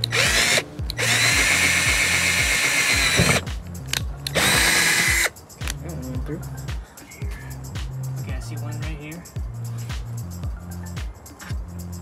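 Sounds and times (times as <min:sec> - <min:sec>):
cordless drill boring through metal: 0:00.0 - 0:03.5, 0:04.3 - 0:05.3.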